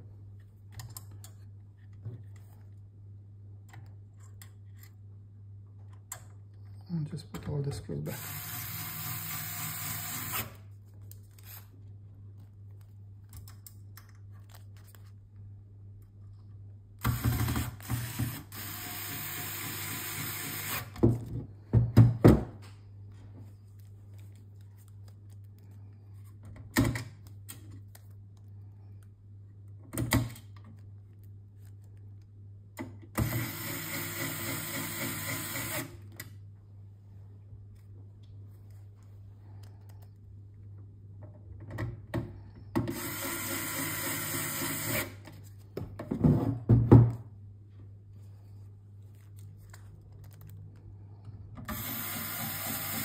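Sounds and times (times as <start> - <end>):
electric screwdriver whirring: 8.1 - 10.6, 17.1 - 20.9, 42.9 - 45.1, 51.7 - 53.0.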